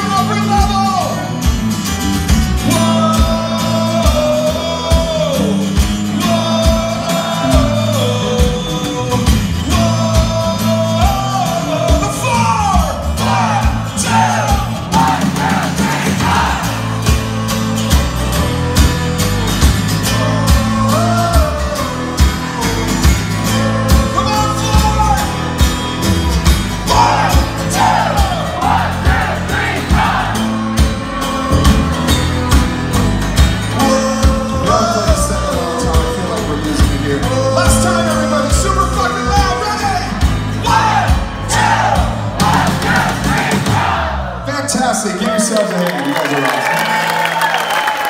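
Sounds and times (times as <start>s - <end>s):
acoustic punk rock band playing: 0.0s - 44.5s
person singing lead vocal: 2.6s - 25.6s, 26.8s - 32.8s, 33.6s - 44.2s
audience singing and shouting along: 2.6s - 44.6s.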